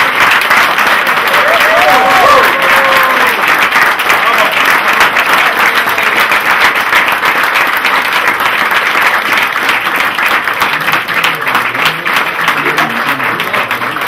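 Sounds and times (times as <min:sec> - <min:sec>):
crowd applauding: 0:00.0 - 0:14.0
murmur of voices: 0:10.4 - 0:14.0.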